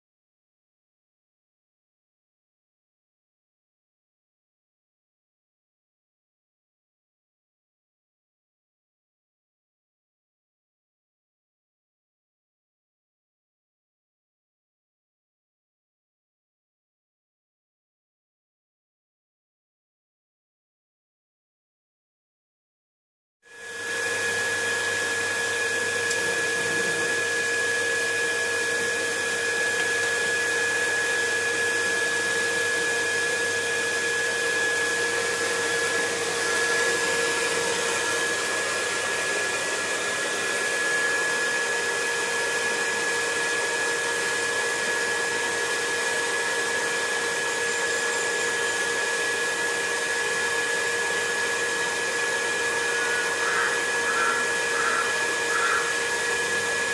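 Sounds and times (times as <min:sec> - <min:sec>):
torch hissing with whistling tone: 0:26.1 - 0:39.9, 0:52.2 - 0:56.9.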